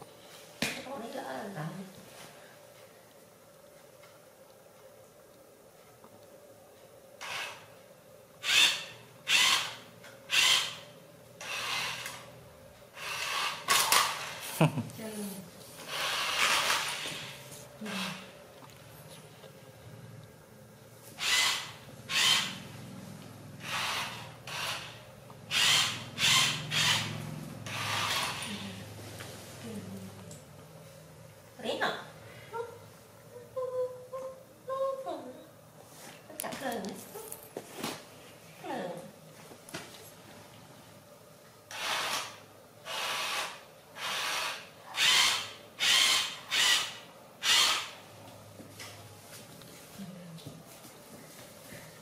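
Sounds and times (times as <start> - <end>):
toy car electric motor whirring: 7.2 - 7.6, 8.4 - 10.8, 11.4 - 12.3, 13.0 - 14.5, 15.8 - 18.3, 21.2 - 22.6, 23.6 - 28.6, 41.7 - 48.0.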